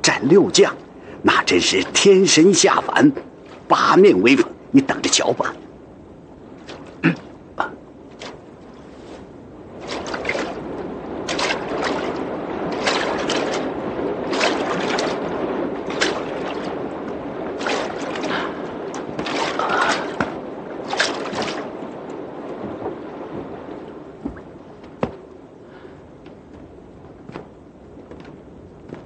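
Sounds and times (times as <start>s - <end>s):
oars splashing water: 6.6s - 7.4s, 8.1s - 25.3s
sharp knocks: 24.2s - 25.2s.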